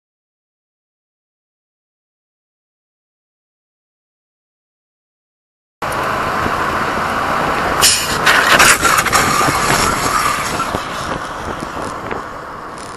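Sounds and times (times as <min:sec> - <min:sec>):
vehicle rumble and wind noise: 0:05.8 - 0:12.9
motorcycle scraping on asphalt: 0:07.8 - 0:12.9.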